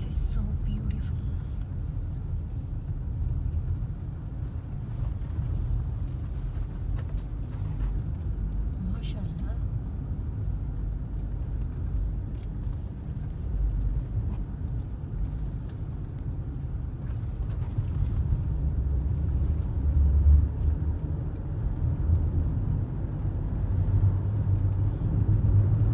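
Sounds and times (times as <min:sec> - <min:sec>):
car interior road rumble: 0:00.0 - 0:25.9.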